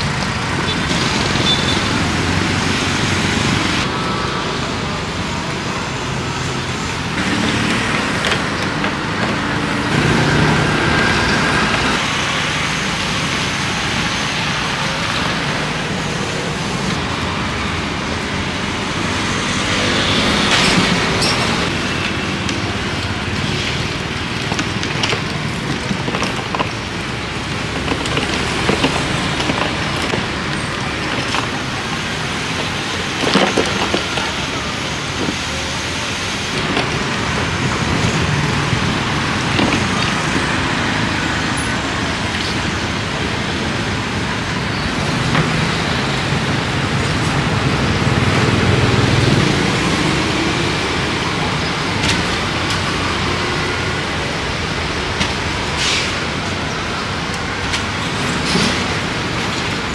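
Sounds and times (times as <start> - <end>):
passing vehicle engines: 0.0 - 59.9.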